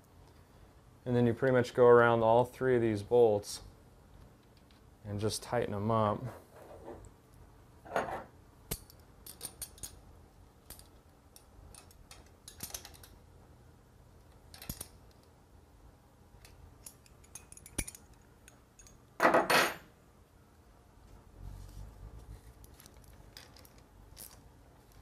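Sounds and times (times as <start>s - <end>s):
metal hardware clicks and clinks: 8.7s - 10.0s, 10.6s - 13.2s, 14.5s - 15.2s, 16.4s - 19.8s, 22.6s - 25.0s.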